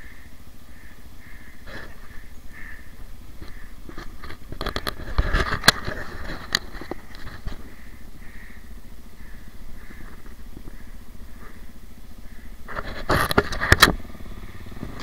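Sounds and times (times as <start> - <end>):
dirt bike engine at low revs: 0.0 - 15.0
sharp clicks and knocks: 3.4 - 7.7, 12.6 - 14.0.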